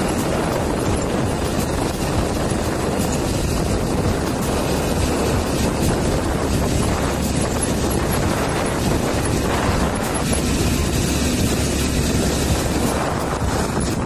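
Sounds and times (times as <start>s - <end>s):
motorcycle engine: 0.0s - 14.0s
wind buffeting microphone: 0.0s - 14.0s.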